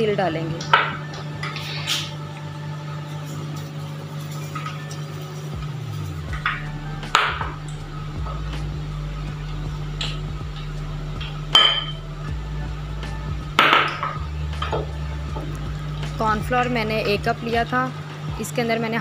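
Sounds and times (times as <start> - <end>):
steady low hum: 0.0 - 19.0
glass bowls clinking: 0.5 - 2.4, 3.1 - 7.7, 10.0 - 12.1.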